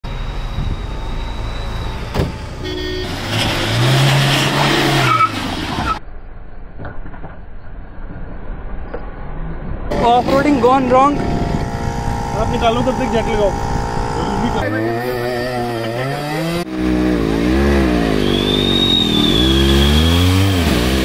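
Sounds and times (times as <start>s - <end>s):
vehicle engine revving: 1.4s - 6.0s, 9.3s - 21.0s
horn toot: 2.6s - 6.0s.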